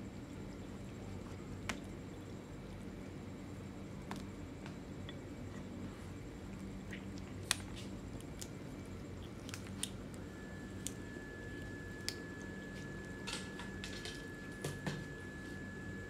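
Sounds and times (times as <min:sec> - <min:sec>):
cats chewing and crunching: 0:00.0 - 0:16.0
low steady hum: 0:00.0 - 0:16.0.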